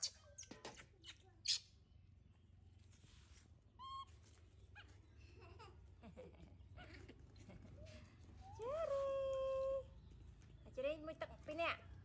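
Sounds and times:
baby monkey squeal: 0.0s - 1.7s, 3.8s - 4.1s.

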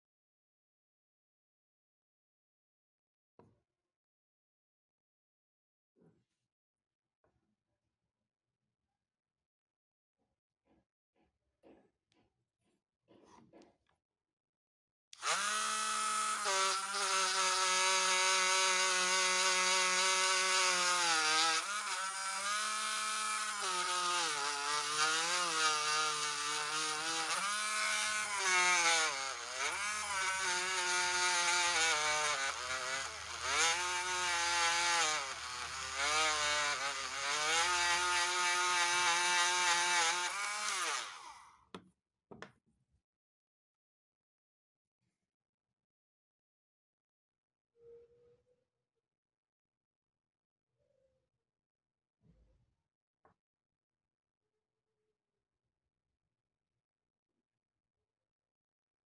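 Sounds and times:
rotary tool motor whine: 15.2s - 41.5s.

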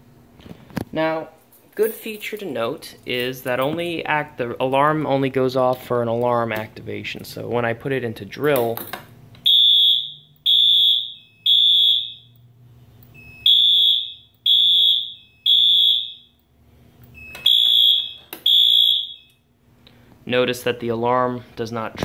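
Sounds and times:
fire alarm beeping: 9.4s - 16.5s, 17.1s - 19.5s.

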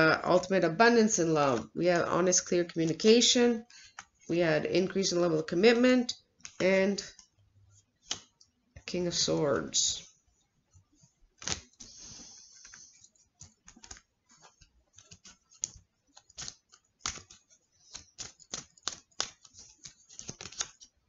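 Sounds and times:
cards clicking and tapping: 3.7s - 4.2s, 6.4s - 7.3s, 8.0s - 8.9s, 11.4s - 12.0s, 12.6s - 21.0s
cards sliding rustle: 11.0s - 21.0s.

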